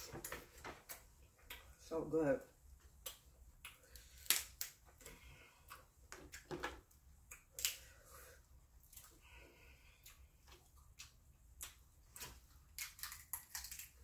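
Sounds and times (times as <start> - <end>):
crab shell cracking: 3.0 - 4.8, 7.3 - 7.9, 11.0 - 14.0.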